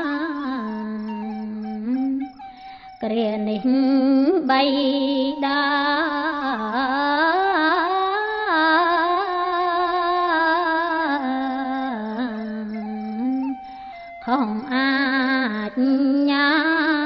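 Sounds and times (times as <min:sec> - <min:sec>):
woman chanting in long notes: 0:00.0 - 0:17.0.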